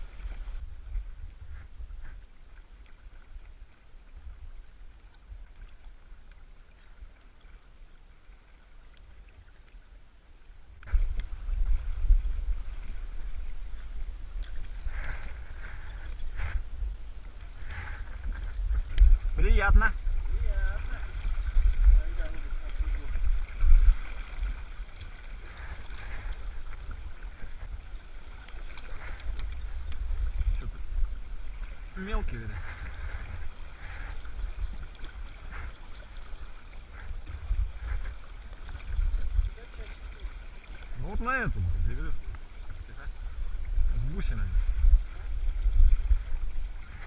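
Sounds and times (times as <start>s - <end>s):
wind rumble on microphone: 0.0s - 5.6s, 10.8s - 47.0s
river running over gravel: 0.0s - 47.0s
low rumble: 41.5s - 47.0s.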